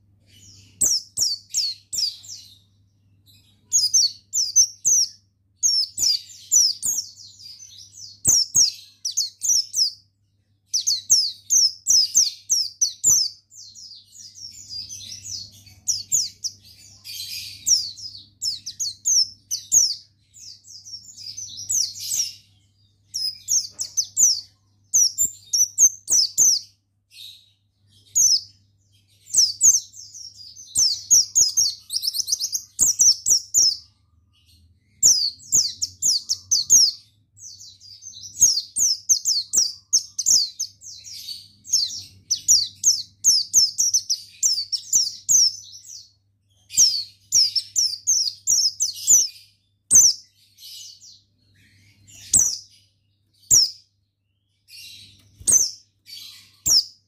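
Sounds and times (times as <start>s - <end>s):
bird twittering: 29.2s - 33.8s, 34.9s - 46.0s, 46.7s - 52.8s.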